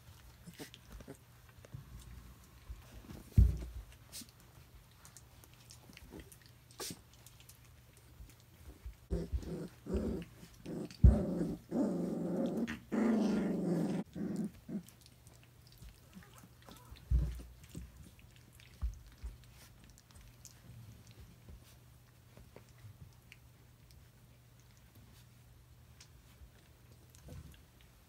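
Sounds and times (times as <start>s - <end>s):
puppies growling: 0.0s - 25.2s
thump: 3.3s - 3.8s.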